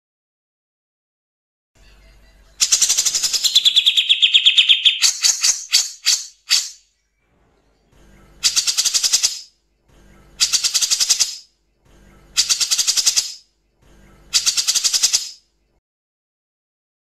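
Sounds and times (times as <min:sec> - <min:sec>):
bird rattling call: 0:02.6 - 0:06.8, 0:08.4 - 0:09.5, 0:10.4 - 0:11.5, 0:12.4 - 0:13.4, 0:14.4 - 0:15.4.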